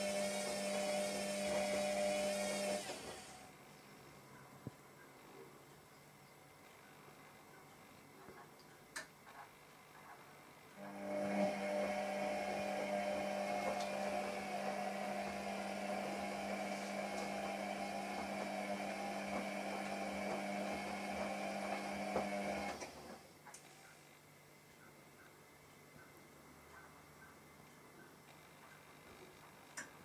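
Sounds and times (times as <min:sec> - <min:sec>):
electric motor humming and whirring: 0:00.0 - 0:03.6, 0:10.8 - 0:23.2.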